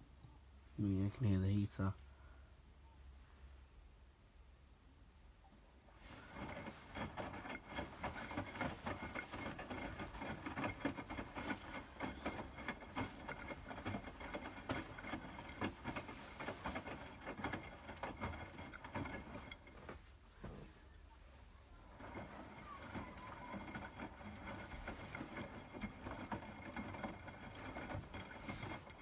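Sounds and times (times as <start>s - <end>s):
washing machine drum sloshing: 6.0s - 20.0s, 21.8s - 29.0s.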